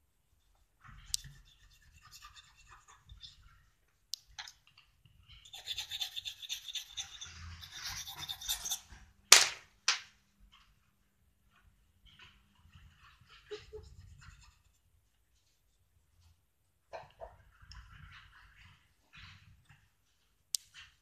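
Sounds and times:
coloured pencil scratching: 0.9s - 3.6s, 5.3s - 9.0s, 13.4s - 15.8s
cotton bud rubbing: 5.4s - 8.8s.

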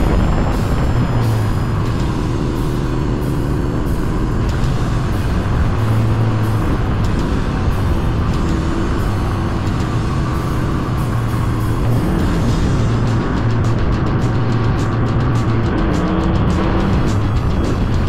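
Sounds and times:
dirt bike engine running: 0.0s - 18.0s.

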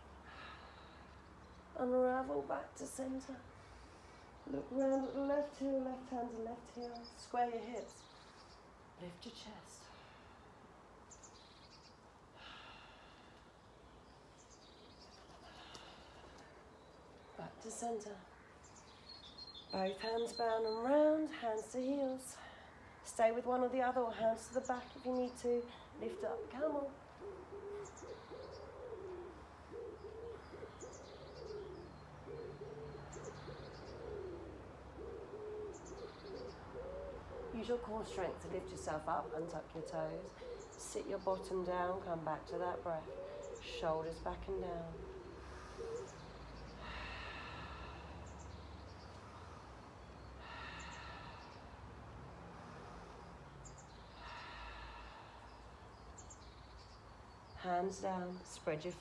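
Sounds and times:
woman breathing slowly: 0.0s - 1.7s, 3.5s - 4.4s, 9.8s - 17.3s, 45.1s - 57.3s
small birds chirping: 0.0s - 59.0s
faint bird chirps: 24.5s - 51.8s
pigeon cooing: 26.1s - 38.1s, 39.7s - 51.5s.

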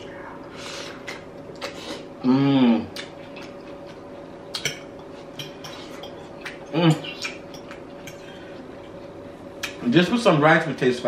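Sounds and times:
person humming mm: 2.2s - 3.0s, 6.7s - 7.3s.

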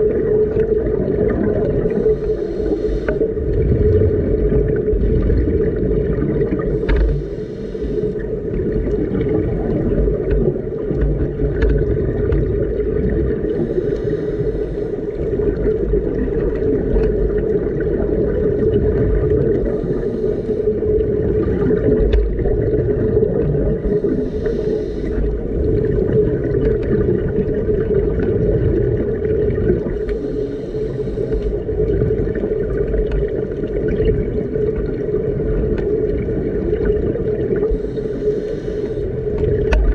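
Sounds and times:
exhaled bubbles bursting: 0.0s - 2.4s, 3.1s - 7.3s, 8.2s - 13.8s, 15.1s - 20.0s, 20.7s - 30.3s, 31.5s - 37.9s, 39.2s - 39.9s
steady low hum: 1.4s - 11.8s, 12.6s - 17.8s, 19.0s - 27.9s, 37.5s - 39.9s
diver breathing through regulator: 1.8s - 3.5s, 6.5s - 8.6s, 13.4s - 15.7s, 19.6s - 21.1s, 23.6s - 26.1s, 29.9s - 31.8s, 37.6s - 39.4s.

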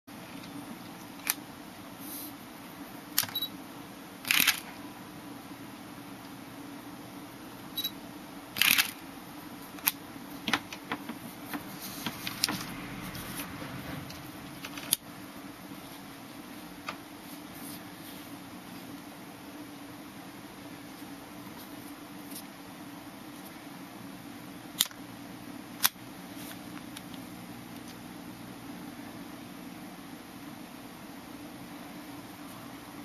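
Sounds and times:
faint camera beep: 3.3s - 3.5s, 7.8s - 8.0s.

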